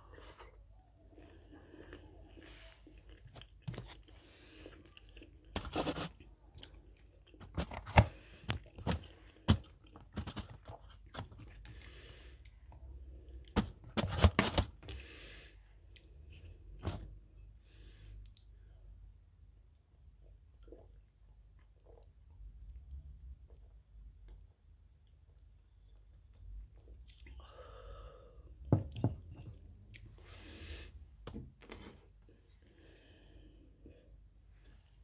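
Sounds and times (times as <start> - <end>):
person chewing: 0.1 - 12.6.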